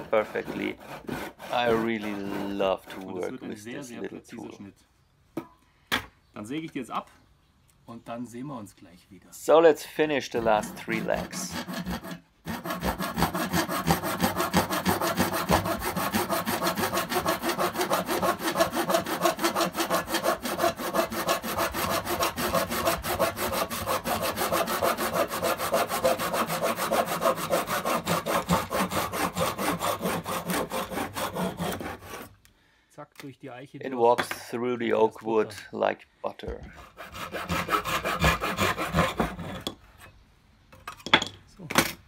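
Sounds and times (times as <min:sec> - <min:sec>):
hand saw cutting wood: 0:00.0 - 0:03.4, 0:10.3 - 0:32.4, 0:36.7 - 0:39.8.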